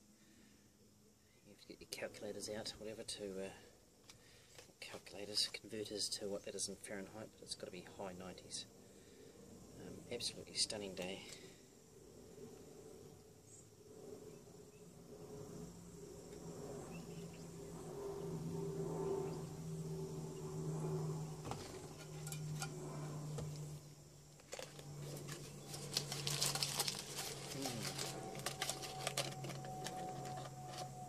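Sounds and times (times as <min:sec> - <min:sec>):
steady low hum: 0:00.0 - 0:31.0
tobacco filling a pipe: 0:24.4 - 0:30.9
tin and paper clicks and crinkles: 0:24.4 - 0:31.0.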